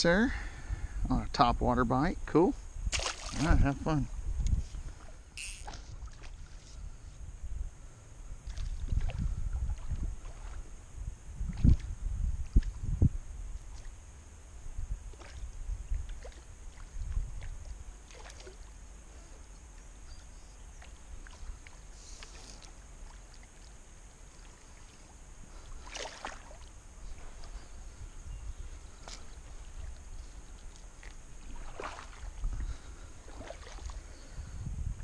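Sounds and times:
steady high hiss: 0.0 - 6.0, 10.6 - 16.9
wind rumble on microphone: 0.5 - 1.8, 2.6 - 18.0, 26.9 - 35.0
soft splashes on river surface: 2.9 - 3.6, 4.6 - 6.7, 8.4 - 10.8, 13.6 - 14.0, 15.0 - 19.9, 20.7 - 28.0, 28.6 - 34.3.

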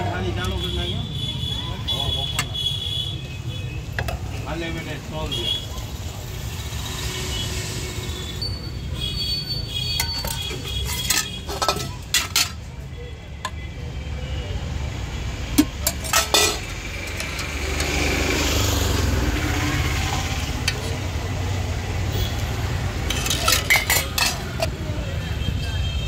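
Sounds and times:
steel ladles clinking on plates: 9.9 - 12.8, 15.5 - 18.1, 19.4 - 21.2, 22.9 - 24.8.

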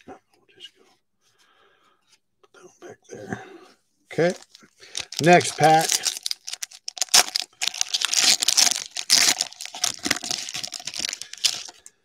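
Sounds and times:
plastic wrapper tearing and crinkling: 4.2 - 11.9.

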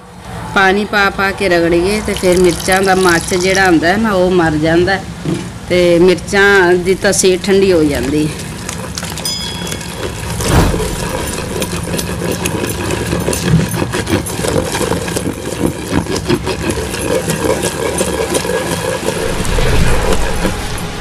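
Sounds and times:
pestle grinding in mortar: 2.1 - 3.8, 6.8 - 20.6.

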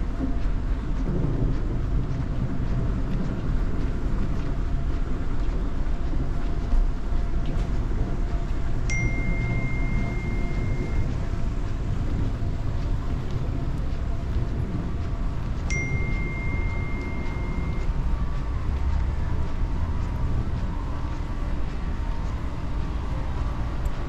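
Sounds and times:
airport terminal rumble: 6.9 - 24.0
high electronic beep: 8.9 - 11.2, 15.7 - 17.9.

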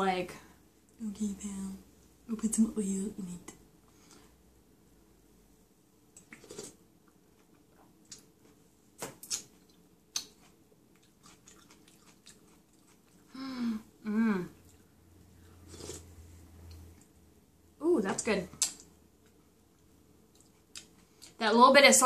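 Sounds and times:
chewing: 6.2 - 8.6, 9.2 - 13.4, 18.6 - 21.4
person humming mmm: 13.3 - 14.6.

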